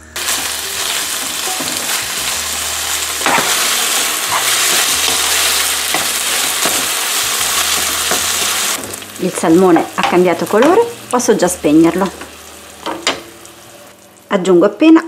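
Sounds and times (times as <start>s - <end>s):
fish sizzling in a frying pan: 0.1s - 14.3s
wooden spoon scraping a pan: 3.2s - 8.8s.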